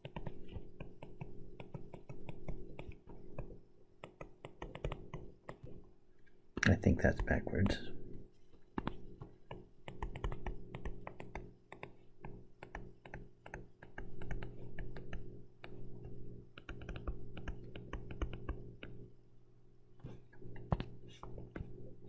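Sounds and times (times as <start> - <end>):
stylus tapping on tablet screen: 0.0 - 5.8, 8.7 - 19.0, 20.4 - 21.8
low electrical hum: 0.0 - 22.0.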